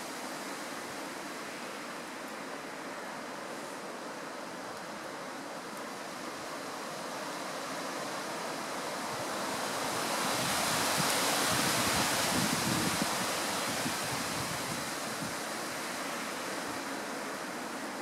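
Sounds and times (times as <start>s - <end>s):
wind buffeting microphone: 9.9s - 15.5s.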